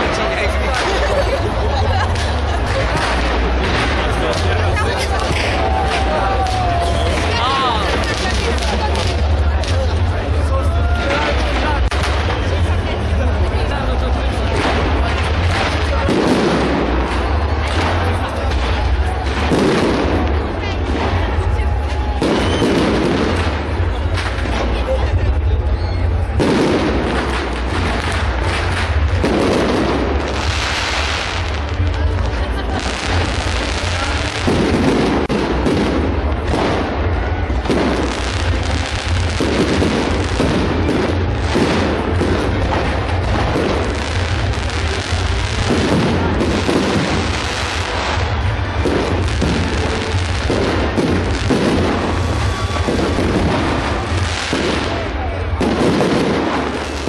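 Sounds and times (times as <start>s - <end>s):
firework crackling: 0.0s - 57.0s
firework shell booming: 26.2s - 31.8s.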